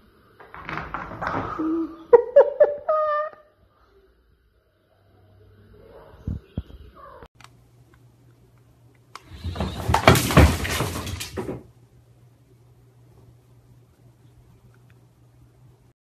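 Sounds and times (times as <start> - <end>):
cat scrambling on hard floor: 9.2 - 11.7.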